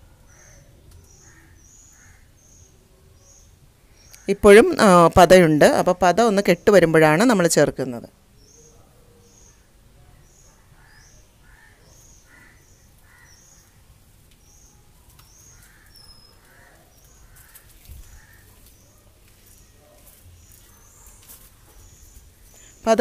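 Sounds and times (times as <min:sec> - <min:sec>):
harsh crow-like calls: 0:00.3 - 0:02.5, 0:10.7 - 0:13.8, 0:15.3 - 0:18.7.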